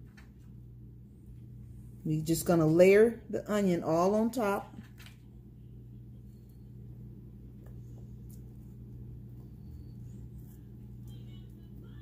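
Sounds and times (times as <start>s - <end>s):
steady low hum: 0.0s - 12.0s
soft clicks and rustles: 4.7s - 5.3s.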